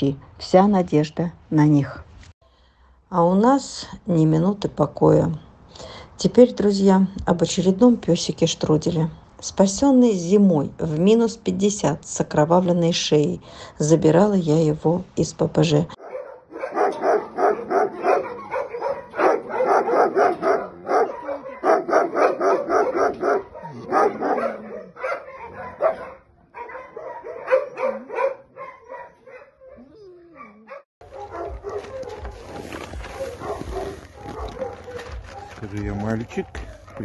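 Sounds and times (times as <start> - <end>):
dogs barking: 16.0 - 37.0
dog whining: 16.6 - 32.3.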